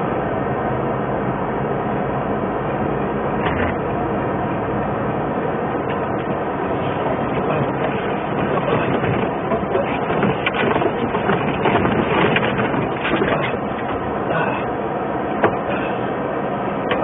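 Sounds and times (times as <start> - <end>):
engine and tyre noise: 0.0 - 17.0.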